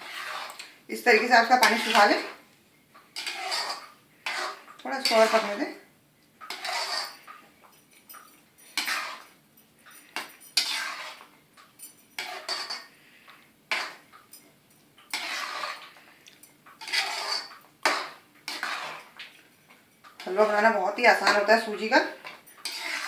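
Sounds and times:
metal spatula scraping metal pan: 0.0 - 2.4, 3.2 - 5.8, 6.4 - 7.4, 8.7 - 9.4, 10.1 - 11.3, 12.2 - 14.1, 15.1 - 23.0.

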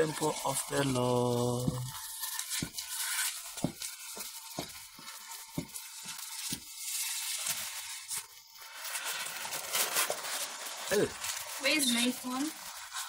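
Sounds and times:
steady hiss: 0.0 - 13.0
wooden stick knocking against pot: 3.6 - 3.8.

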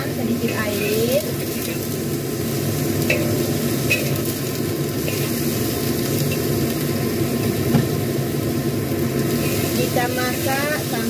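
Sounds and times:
stir-fry sizzling in a wok: 0.0 - 11.0
spatula scraping a wok: 3.0 - 6.5, 9.2 - 11.0.

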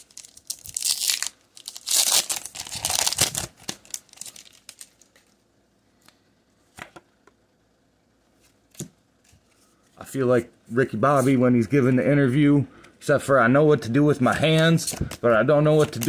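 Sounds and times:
foil wrapper crinkling and tearing: 0.0 - 5.4, 15.7 - 16.0.

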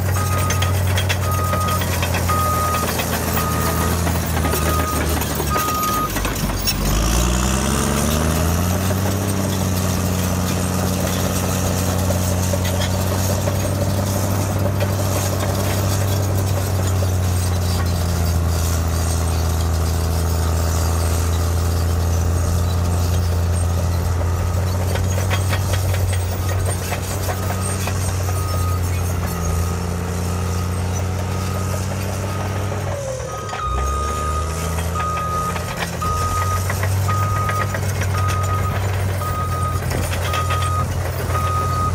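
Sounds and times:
reversing alarm beeping: 0.0 - 12.4, 22.4 - 41.9
bulldozer diesel engine: 0.0 - 41.9.

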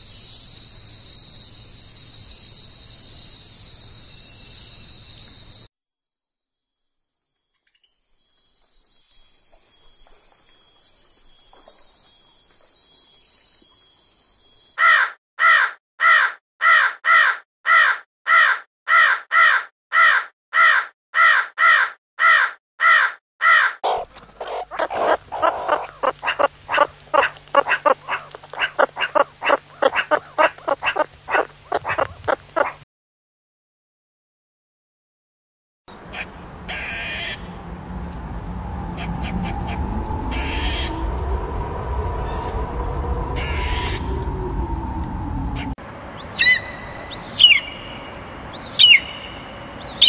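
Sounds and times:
crickets chirring: 0.0 - 5.7, 6.9 - 14.8, 23.8 - 32.8
crow cawing loudly: 14.8 - 32.7.

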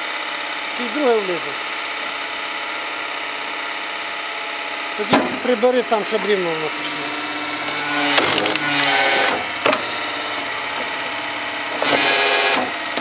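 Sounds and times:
firewood processing machine running: 0.0 - 13.0
wood cracking: 7.5 - 9.0.

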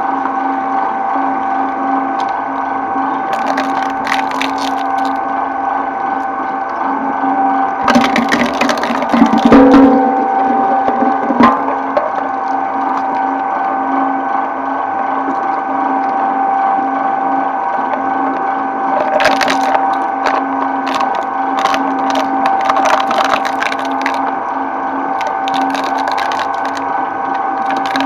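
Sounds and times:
shredder humming drone: 0.0 - 28.0
plastic cracking on blades: 25.2 - 26.8, 27.6 - 28.0.

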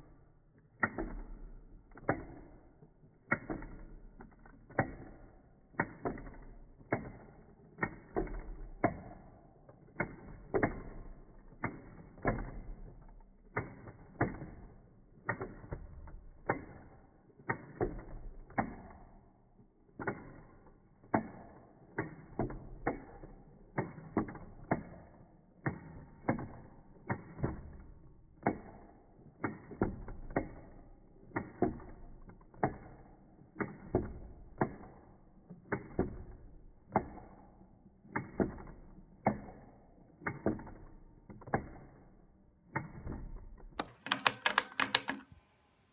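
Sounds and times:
clockwork toy clicking: 38.0 - 45.5.

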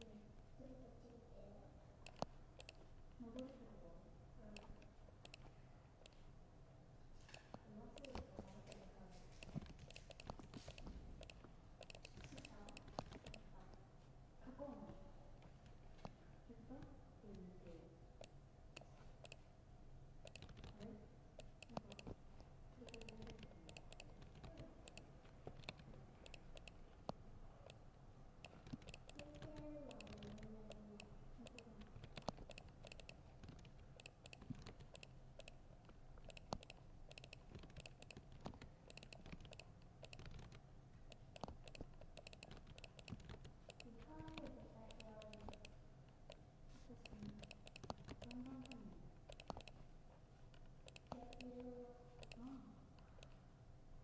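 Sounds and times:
typing on laptop keyboard: 2.0 - 3.6, 4.5 - 6.2, 7.3 - 13.6, 20.2 - 22.2, 22.8 - 27.8, 28.4 - 49.9, 50.5 - 52.5.

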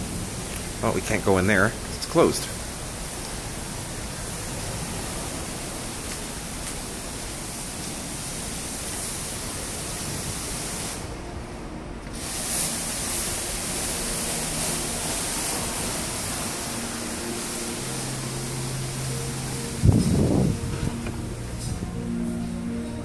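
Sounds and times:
faint music: 0.0 - 23.0
wind rushing on microphone: 19.8 - 21.0.

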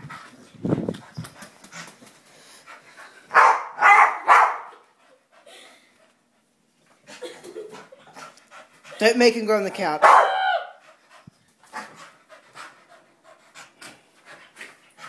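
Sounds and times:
dog barking: 3.3 - 4.8, 10.0 - 10.8.

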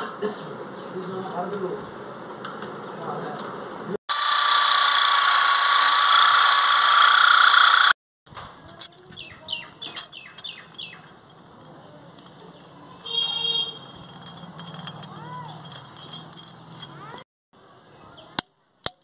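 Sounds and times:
birds chirping: 0.3 - 2.1, 8.7 - 14.1, 15.6 - 17.2
electric drill boring into concrete: 4.1 - 8.0.

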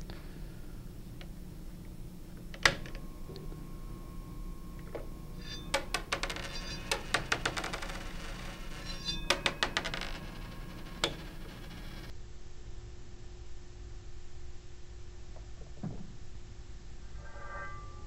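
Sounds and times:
faint steady hum: 0.0 - 18.0
coins clinking and clattering: 5.7 - 12.1.

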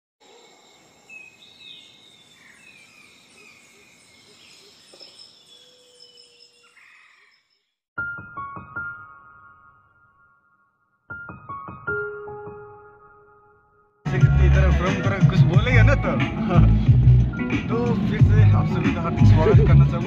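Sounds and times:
high insect trill: 0.2 - 6.9
bird-like chirps: 0.2 - 7.8
loud piano music: 8.0 - 20.0.

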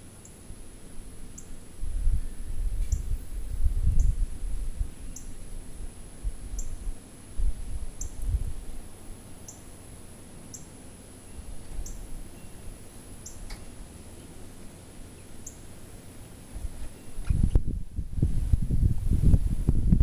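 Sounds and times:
wind rumble on microphone: 0.6 - 9.2, 16.5 - 20.0
bird chirping: 5.0 - 5.4, 8.0 - 8.2, 9.4 - 9.7, 10.5 - 14.4.

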